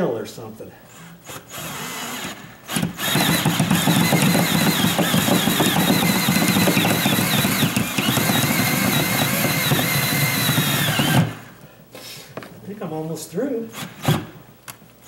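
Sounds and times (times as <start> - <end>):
power drill boring through wood: 1.0 - 11.6, 13.7 - 14.4.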